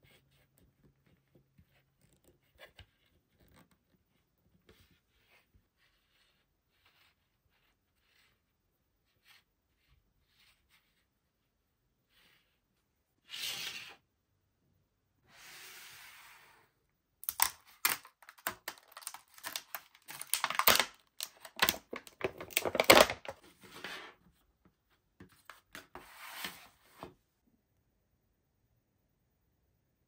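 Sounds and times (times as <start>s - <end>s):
plastic packaging crackling: 17.2s - 23.4s.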